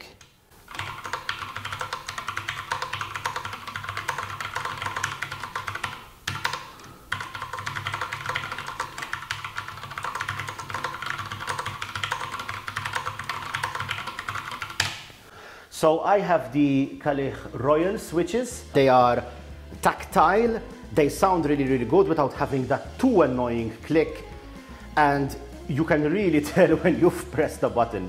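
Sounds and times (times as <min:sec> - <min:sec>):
mechanical keyboard typing: 0:00.7 - 0:15.0.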